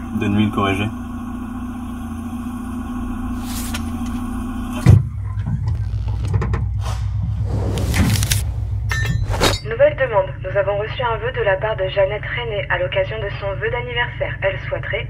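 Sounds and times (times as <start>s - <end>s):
car engine humming: 0.0s - 10.8s
loud thump: 6.4s - 9.7s.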